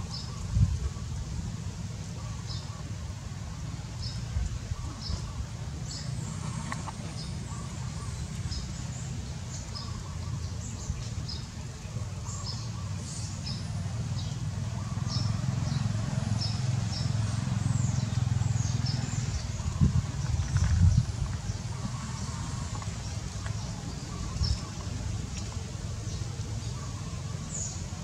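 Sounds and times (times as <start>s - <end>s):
small birds chirping: 2.0s - 28.0s
steady low rumble: 13.6s - 28.0s.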